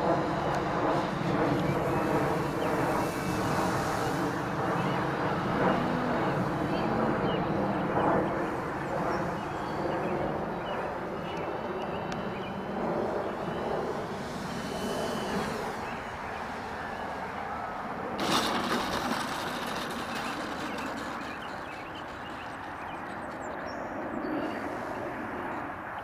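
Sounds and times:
model plane motor whine: 12.0s - 16.8s, 18.2s - 25.3s
rushing noise: 18.2s - 23.5s.

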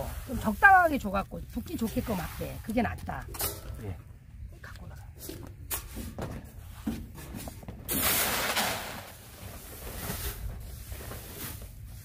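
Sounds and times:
grain pouring hiss: 7.9s - 12.0s.

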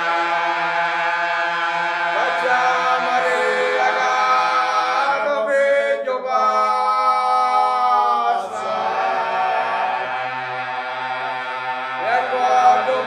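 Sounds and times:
male chorus singing a cappella: 0.0s - 13.0s.

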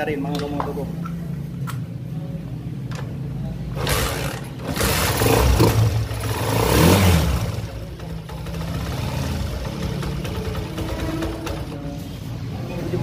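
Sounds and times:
motorcycle engine running and revving: 3.7s - 13.0s.

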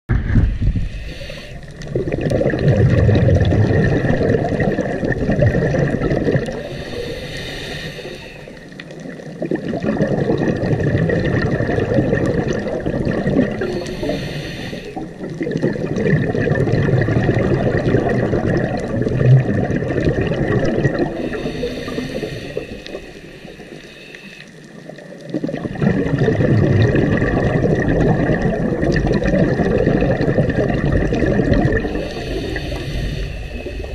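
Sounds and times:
exhaled bubbles gurgling: 0.1s - 33.9s
regulator inhale hiss: 0.6s - 1.9s, 6.6s - 9.1s, 13.6s - 15.2s, 21.1s - 24.8s, 31.8s - 33.9s.

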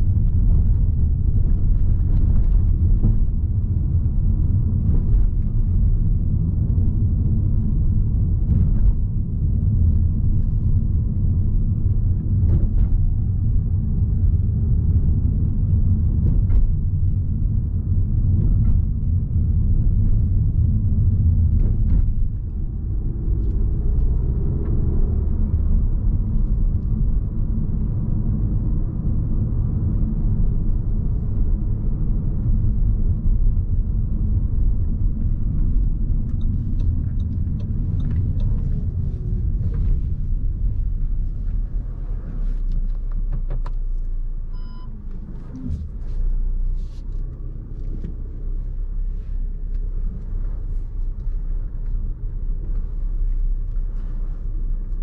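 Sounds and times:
car rumbling on rough road: 0.0s - 55.0s
short beep: 44.5s - 44.9s.

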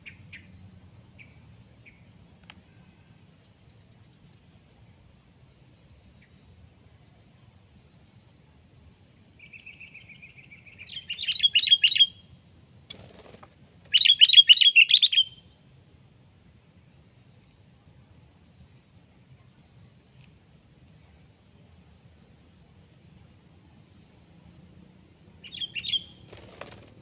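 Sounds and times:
bird chirping: 9.4s - 12.2s, 12.9s - 15.4s, 25.4s - 27.0s.

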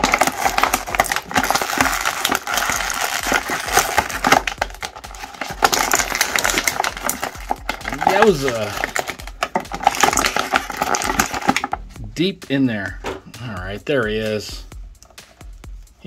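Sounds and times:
plastic tray crackling: 0.0s - 11.8s.

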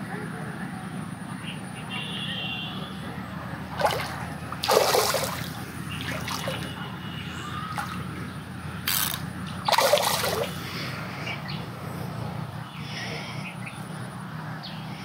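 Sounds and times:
fish splashing in water: 3.7s - 10.9s.

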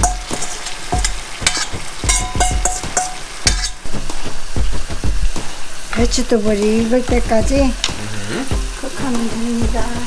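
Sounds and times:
utensil knocking and clinking on pan: 0.0s - 3.8s
food sizzling in a pan: 0.0s - 10.0s.

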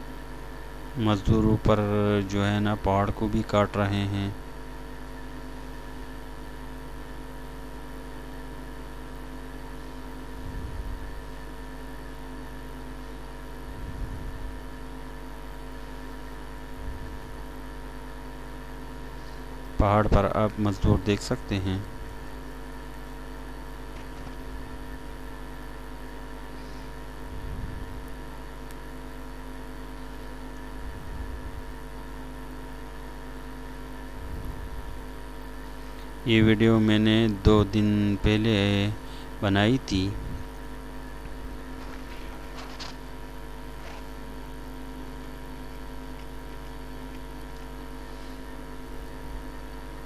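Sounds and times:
steady tonal hum with low drone: 0.0s - 50.0s.

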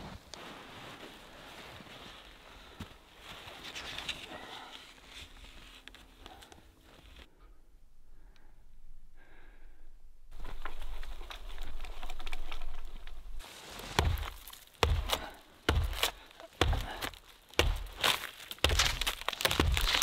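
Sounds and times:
hand axe chopping tree trunk: 13.9s - 20.0s.

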